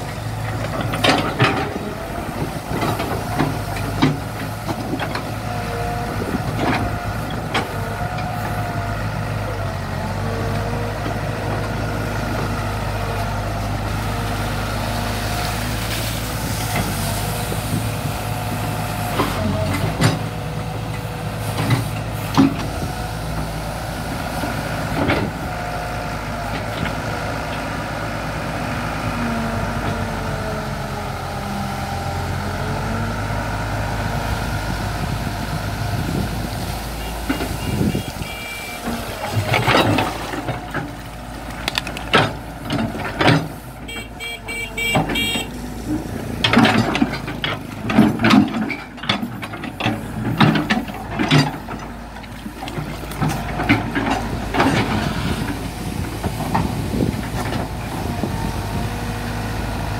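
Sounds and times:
excavator diesel engine running: 0.0 - 59.9
excavator bucket clanks and thuds: 0.1 - 8.6, 18.9 - 23.1, 24.4 - 25.7, 35.9 - 58.9.

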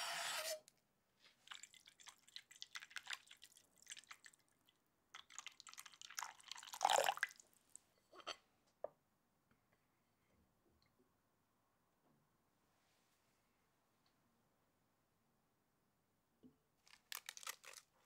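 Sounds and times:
water pouring into glass bowl: 5.2 - 7.4.

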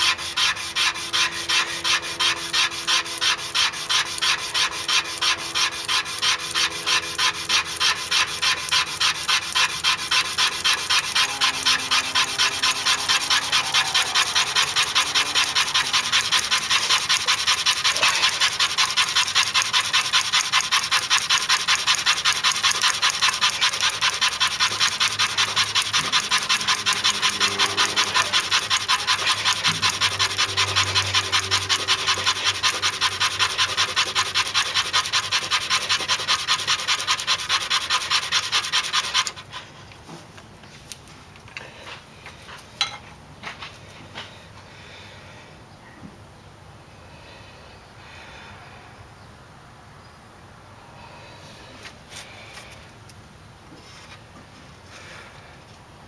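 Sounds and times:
wooden stick rasping in groove: 0.0 - 39.8.

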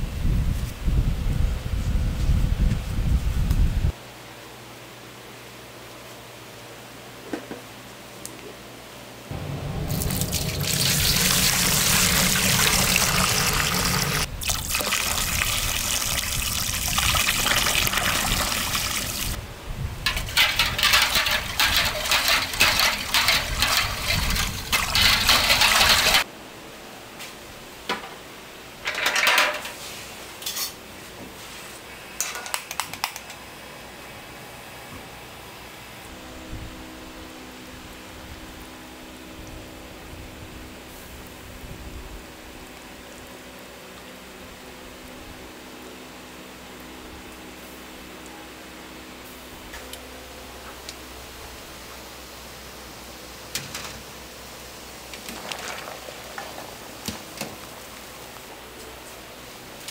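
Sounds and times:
water running hard: 9.6 - 19.4, 20.3 - 26.2, 55.1 - 57.1.

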